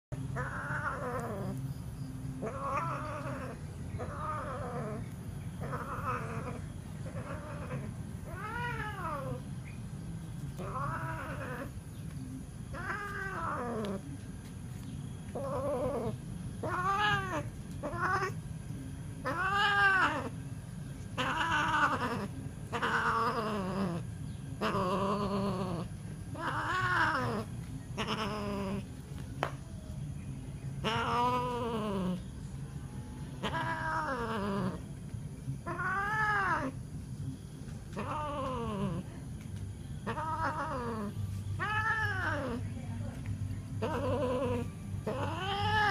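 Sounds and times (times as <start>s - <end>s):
cat caterwauling: 0.2s - 1.6s, 2.4s - 9.5s, 10.6s - 11.8s, 12.7s - 14.0s, 15.4s - 18.4s, 19.2s - 20.4s, 21.2s - 28.9s, 30.8s - 32.2s, 33.4s - 34.8s, 35.6s - 36.8s, 37.9s - 39.0s, 40.0s - 42.6s, 43.8s - 45.9s.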